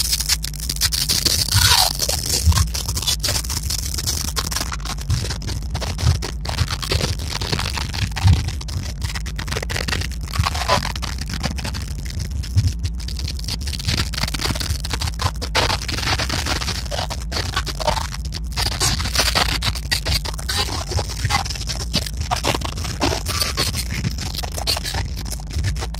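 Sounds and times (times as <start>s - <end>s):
steady low rumble: 0.0s - 25.9s
microphone handling noise: 12.3s - 13.1s.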